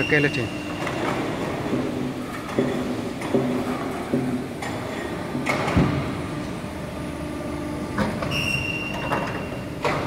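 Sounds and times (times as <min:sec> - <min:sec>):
high steady machine whine: 0:00.0 - 0:10.0
machinery humming: 0:00.0 - 0:10.0
machine knock: 0:00.8 - 0:06.1.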